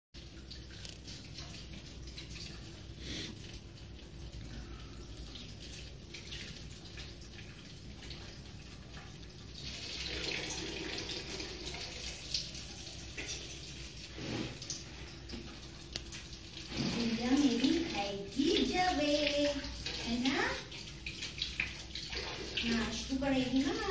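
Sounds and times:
water splashing into bucket: 15.9 - 23.9.

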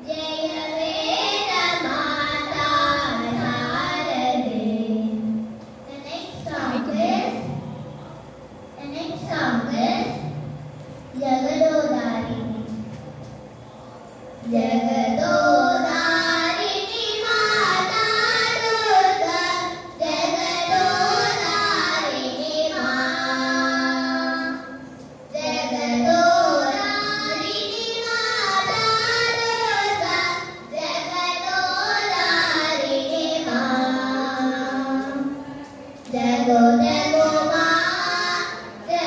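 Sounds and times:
girls singing together: 0.0 - 7.9, 14.4 - 39.0.

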